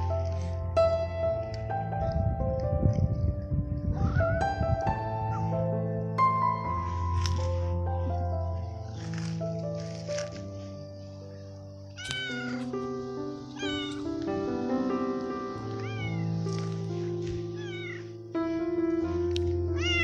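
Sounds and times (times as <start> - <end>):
cat meowing: 12.0 - 12.7, 13.6 - 14.3, 15.6 - 16.4, 17.5 - 18.2, 19.7 - 20.0.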